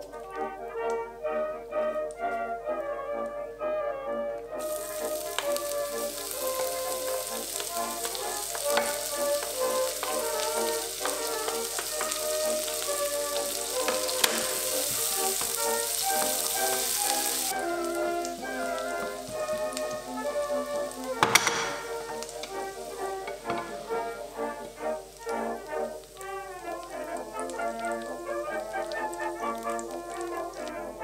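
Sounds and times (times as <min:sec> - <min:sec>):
onions sizzling in a pan: 0:04.5 - 0:31.0.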